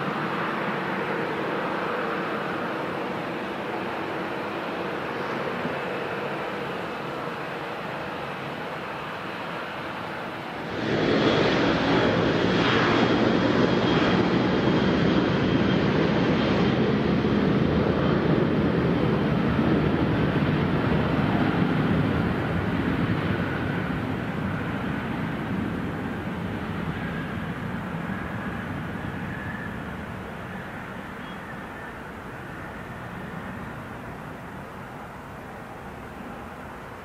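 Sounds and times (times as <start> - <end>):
jet engines roaring: 0.0 - 37.0.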